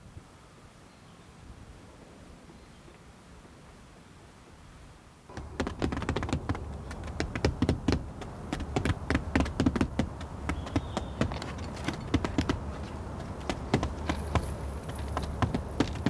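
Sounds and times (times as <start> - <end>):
hammers tapping: 5.3 - 16.0.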